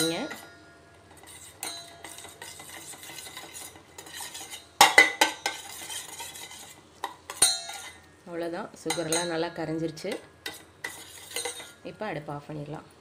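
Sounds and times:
spoon scraping metal pan: 0.0 - 8.1, 8.9 - 11.9
spoon clinking against pan: 1.1 - 8.0, 8.9 - 9.5, 10.1 - 11.8.

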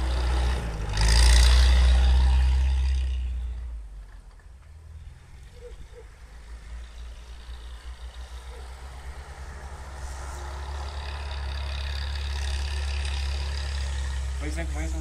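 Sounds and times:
off-road vehicle engine revving: 0.0 - 3.7, 5.0 - 15.0
wheels spinning in snow: 6.6 - 15.0.

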